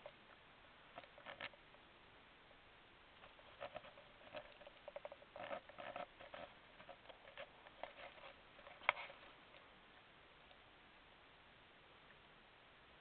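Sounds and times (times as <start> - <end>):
handheld camera rustles and clicks: 1.0 - 1.6, 3.2 - 9.7.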